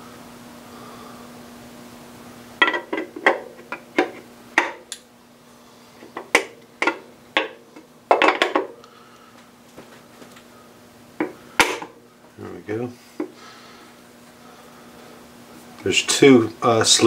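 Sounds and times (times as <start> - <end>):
metal clinks and knocks: 6.2 - 8.8.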